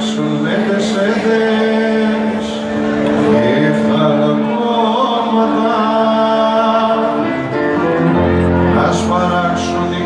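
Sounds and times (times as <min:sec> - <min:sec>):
electric guitar: 0:00.0 - 0:10.0
bass guitar: 0:02.1 - 0:10.0.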